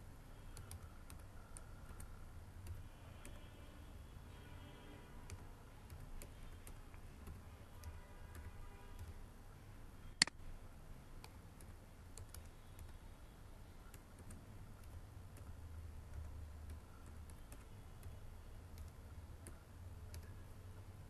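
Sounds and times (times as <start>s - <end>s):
computer keyboard typing clicks: 0.4s - 3.5s, 5.2s - 9.2s, 11.2s - 13.0s, 13.8s - 20.9s.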